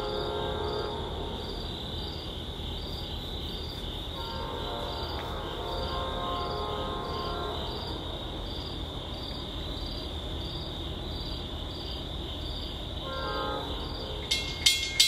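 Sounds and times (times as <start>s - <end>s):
distant locomotive horn: 0.0s - 1.7s, 4.2s - 8.1s, 13.0s - 14.4s
crickets chirping: 0.0s - 15.0s
crossing bell clanging: 14.2s - 15.0s.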